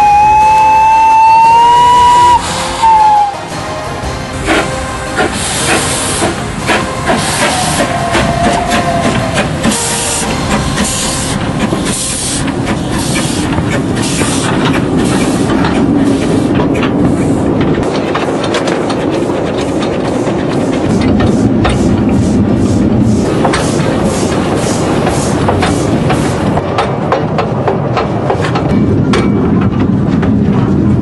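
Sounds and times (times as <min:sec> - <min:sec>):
escaping steam hissing: 0:00.0 - 0:03.6, 0:04.4 - 0:17.6
steam locomotive exhaust chuffs: 0:00.0 - 0:29.1
train wheels clicking on rails: 0:00.0 - 0:31.0.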